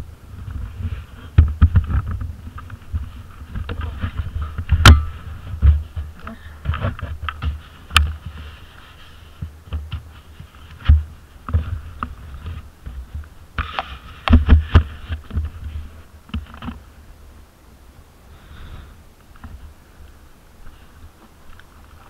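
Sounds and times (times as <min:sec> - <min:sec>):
atv jolting over rough ground: 0:00.0 - 0:08.7, 0:09.3 - 0:16.9.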